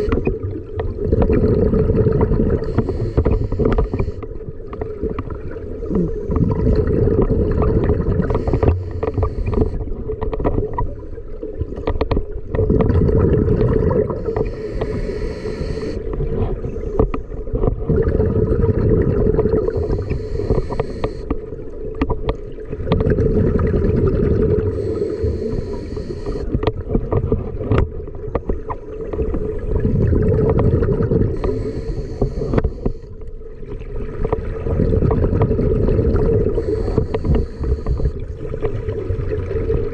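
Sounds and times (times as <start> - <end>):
regulator inhale hiss: 0.0 - 0.2, 2.6 - 4.3, 8.2 - 9.9, 14.2 - 16.1, 19.6 - 21.3, 24.6 - 26.5, 31.3 - 33.2, 36.4 - 38.3
exhaled air bubbling: 0.0 - 39.9
small clicks and knocks: 11.6 - 12.3.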